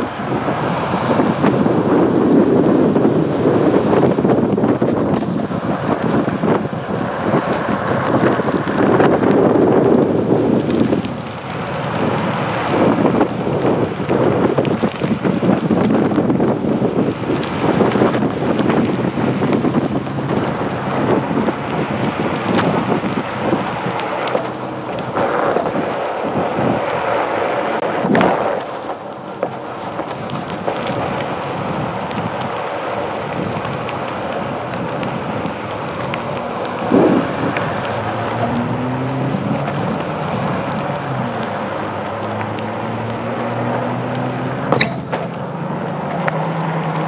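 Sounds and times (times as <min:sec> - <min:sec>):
tyre rolling over pavement: 0:00.0 - 0:47.0
wind rumbling on microphone: 0:00.0 - 0:47.0
board bumps: 0:27.9 - 0:31.3, 0:44.7 - 0:46.3.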